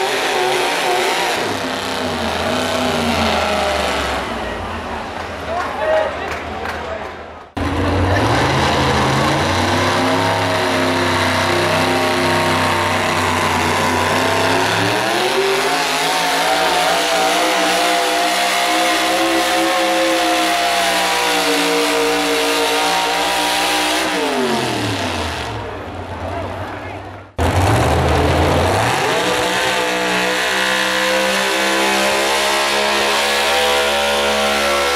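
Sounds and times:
truck engine running flat out: 7.6s - 26.6s, 27.3s - 34.9s.

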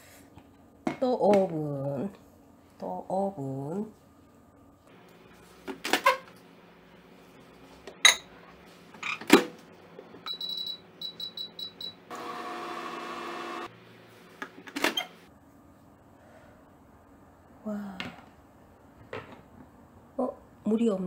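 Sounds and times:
microwave oven humming: 9.9s - 14.1s
keypad beeping: 10.3s - 12.0s.

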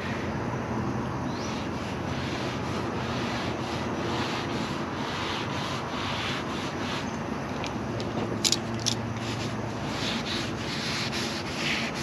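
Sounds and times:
paper towel rubbing hot griddle: 1.4s - 7.6s, 9.2s - 12.0s.

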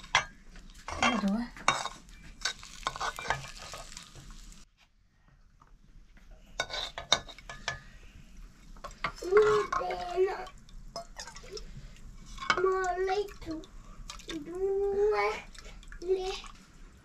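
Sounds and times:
metal utensil scraping a pot: 0.0s - 4.1s, 6.5s - 7.9s.

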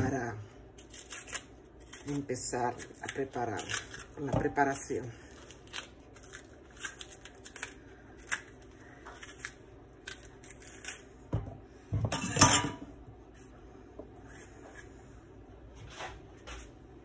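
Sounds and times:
knife scraping plantain skin: 0.8s - 4.3s.

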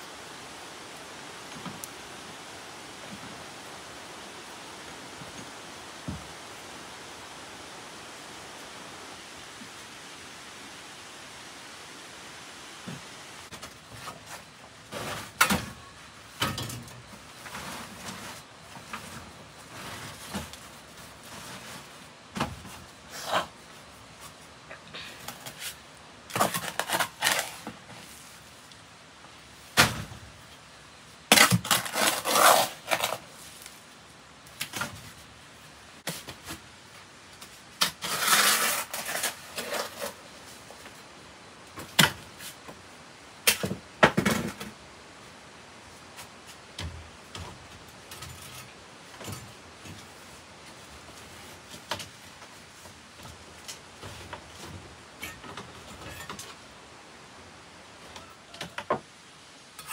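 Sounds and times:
steady low hiss: 0.0s - 59.9s
objects knocking and clattering: 43.5s - 44.8s.

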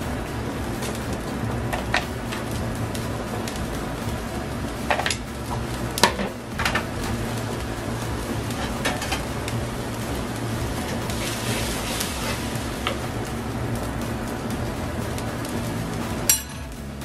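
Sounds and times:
broth simmering in a pan: 0.0s - 17.0s
low kitchen hum: 0.0s - 17.0s
metal tongs clinking on pan: 16.3s - 16.7s.

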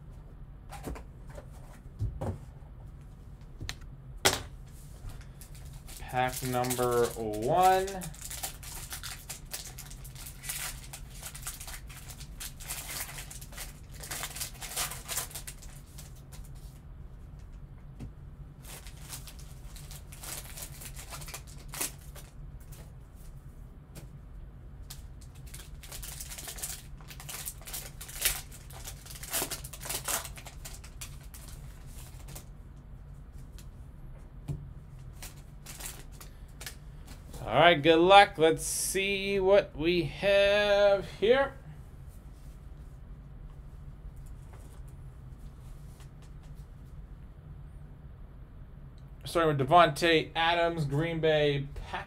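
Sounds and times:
steady low hum: 0.0s - 52.0s
foil wrapper crinkling and tearing: 5.4s - 16.6s, 18.6s - 22.8s, 24.9s - 32.5s, 35.1s - 36.8s.

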